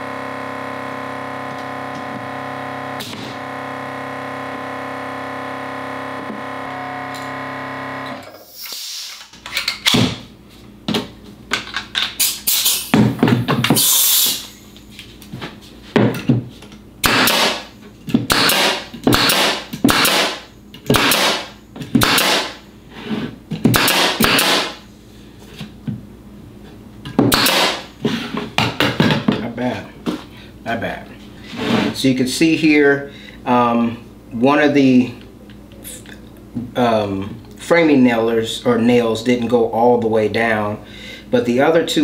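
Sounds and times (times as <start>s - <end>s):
hiss of exhaust air: 13.8s - 14.7s
nail gun bang: 17.0s - 17.7s, 18.3s - 22.6s, 23.6s - 24.8s, 27.2s - 27.9s.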